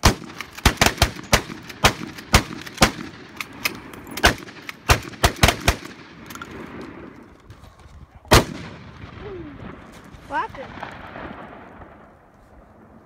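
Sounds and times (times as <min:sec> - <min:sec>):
rapid gunshots with echo: 0:00.0 - 0:03.6.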